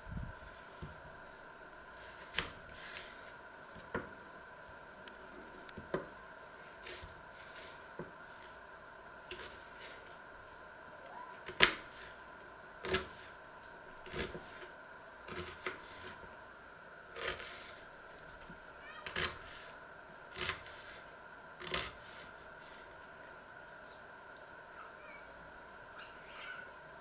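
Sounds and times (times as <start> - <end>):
knife cutting onion on board: 12.8 - 13.2, 14.0 - 14.6, 15.3 - 16.2, 17.2 - 17.8, 19.0 - 19.7, 20.3 - 21.0, 21.6 - 22.8.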